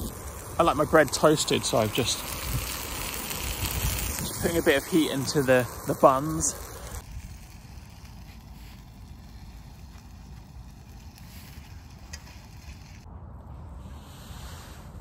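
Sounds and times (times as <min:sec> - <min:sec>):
faint hiss: 0:00.0 - 0:13.0
wind buffeting the microphone: 0:01.9 - 0:05.0.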